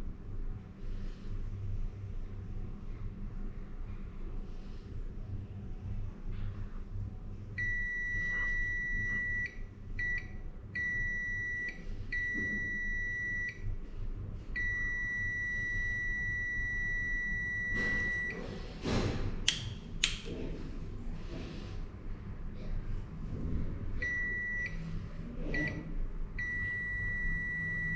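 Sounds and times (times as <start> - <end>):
multimeter beeping: 7.6 - 13.6, 14.6 - 18.4, 24.0 - 24.8, 26.4 - 27.9.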